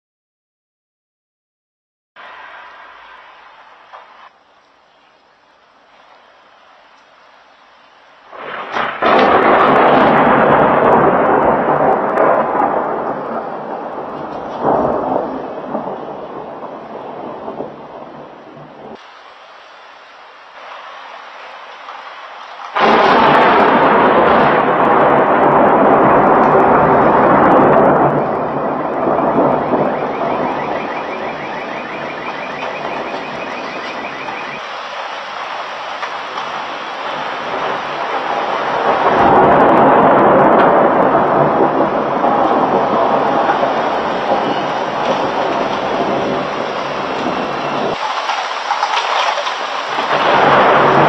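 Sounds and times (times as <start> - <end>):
thunder crash and rumble: 8.3 - 19.0, 21.9 - 51.0
thunder crackle: 8.3 - 19.3, 20.5 - 51.0
car alarm chirping: 28.1 - 34.7, 44.3 - 44.9.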